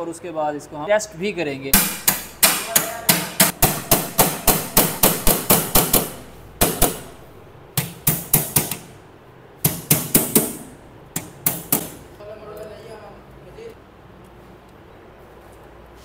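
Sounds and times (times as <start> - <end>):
hammer striking metal cover: 1.8 - 9.0, 9.6 - 12.0.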